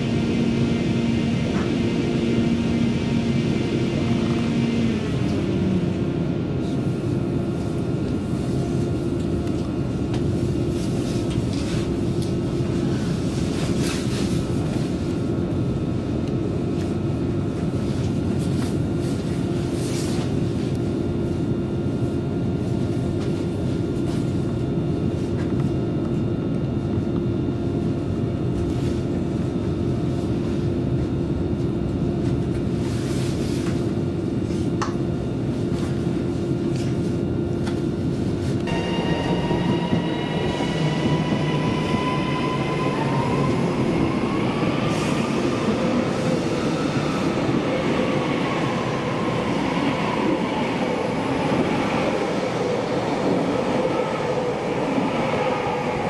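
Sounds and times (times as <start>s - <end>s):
constant low hum: 0.0s - 55.8s
wheels rumbling on rail: 30.2s - 56.0s.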